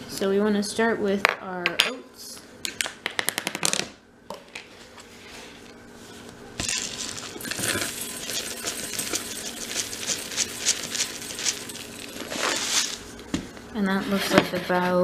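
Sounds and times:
oats pouring into glass bowl: 6.6s - 13.1s.

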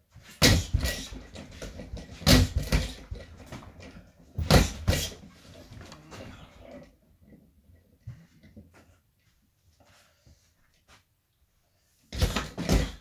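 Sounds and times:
punches thudding on punching ball: 1.9s - 3.2s, 4.4s - 5.1s.

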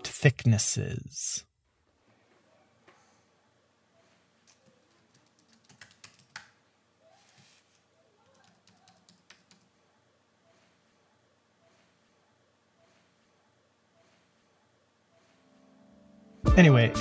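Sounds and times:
typing on computer keyboard: 4.4s - 6.6s, 8.2s - 9.8s.

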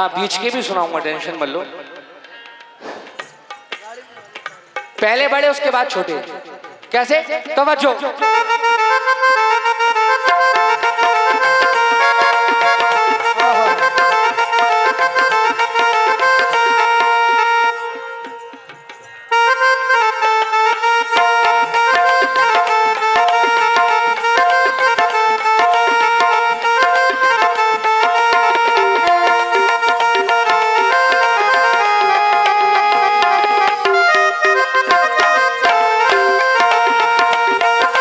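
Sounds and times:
fast sharp percussion: 0.0s - 38.0s
reedy electronic keyboard melody: 8.1s - 38.0s.

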